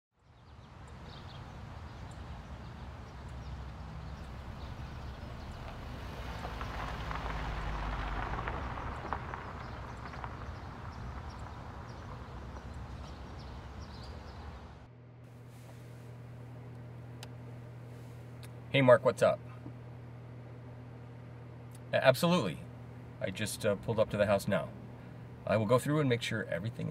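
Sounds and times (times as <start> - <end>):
birds chirping faintly: 0.2 - 26.9
car engine and tyres approaching: 0.5 - 14.9.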